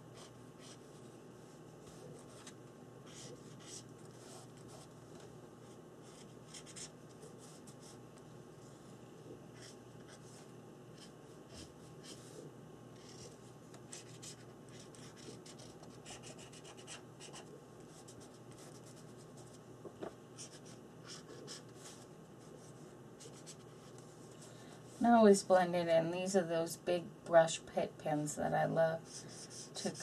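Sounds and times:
brush pen scratching on paper: 1.9s - 5.2s, 13.0s - 19.0s, 29.1s - 30.0s.

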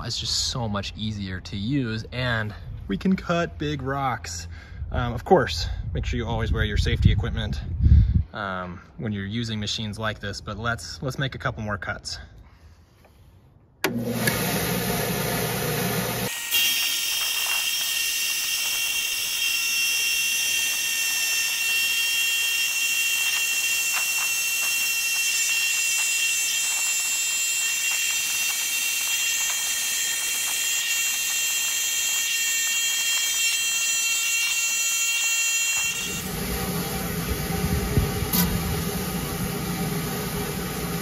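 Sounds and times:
saw blade whining: 13.8s - 41.0s
lower-pitched running sound: 36.0s - 41.0s.

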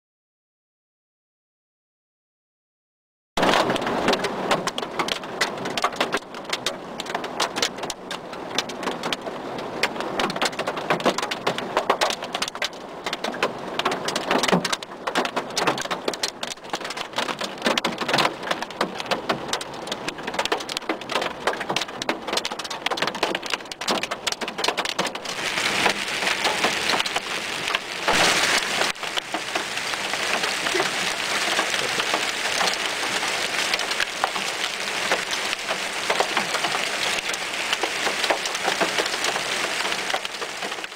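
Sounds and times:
hail hitting: 3.4s - 40.9s
rain hissing: 23.2s - 40.9s.

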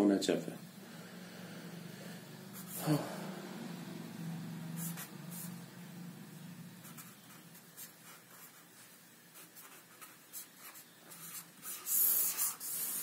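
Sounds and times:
pen scratching on paper: 2.6s - 2.8s, 4.7s - 5.6s, 6.8s - 8.8s, 9.4s - 13.0s.

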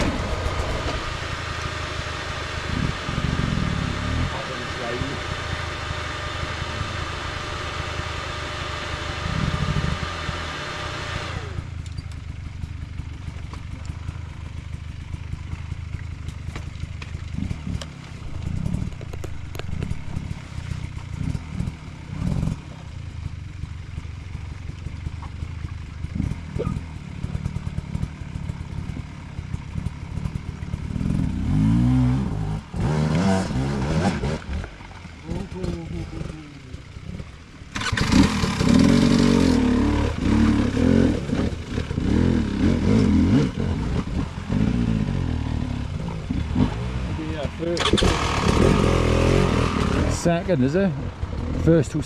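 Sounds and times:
dirt bike revving hard: 0.0s - 11.6s, 21.1s - 22.8s, 30.2s - 34.6s, 37.7s - 51.8s
dirt bike engines idling: 0.0s - 52.0s.

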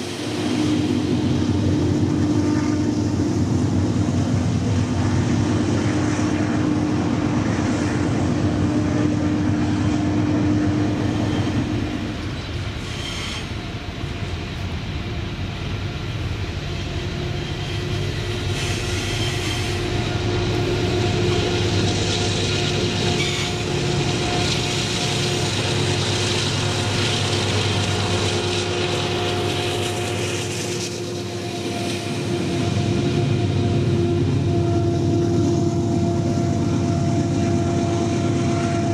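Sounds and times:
train wheels rumbling on rail: 0.0s - 38.9s
wheel squeal: 11.0s - 13.6s, 17.4s - 20.0s, 23.0s - 23.7s.

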